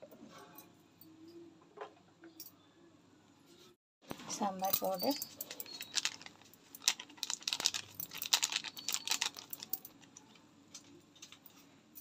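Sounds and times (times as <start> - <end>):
plastic crinkling: 4.8 - 11.3
powder shaken from plastic container: 5.5 - 9.7.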